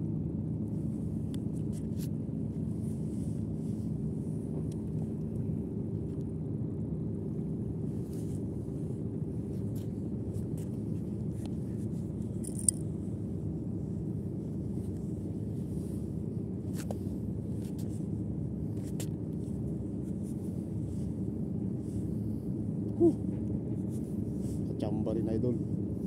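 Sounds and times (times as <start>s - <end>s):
wind: 0.0s - 26.0s
fishing line clicks and scrapes: 9.6s - 12.8s.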